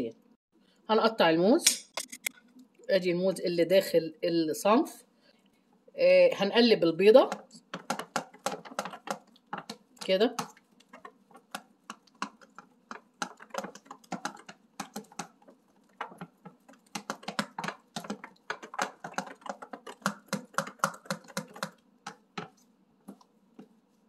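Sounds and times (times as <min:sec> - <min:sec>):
spoon tapping dish: 0:07.3 - 0:23.3.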